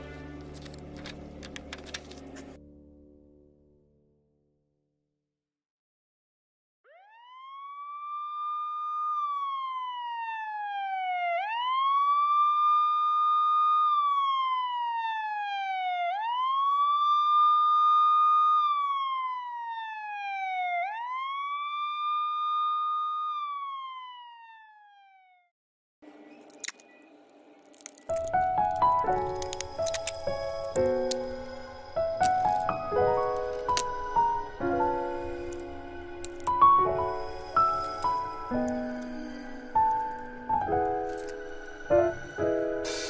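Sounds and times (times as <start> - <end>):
siren wailing: 6.9 - 25.5, 28.2 - 42.6.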